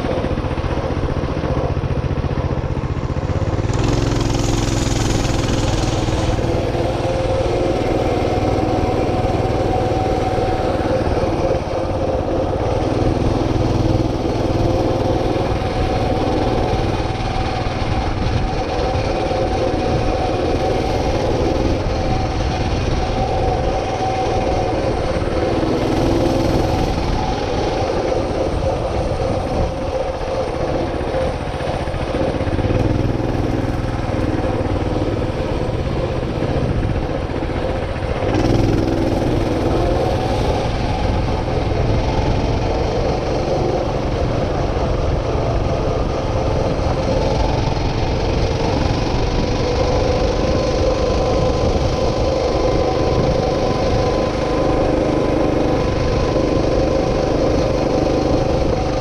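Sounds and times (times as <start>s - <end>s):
wind and road noise: 0.0s - 59.0s.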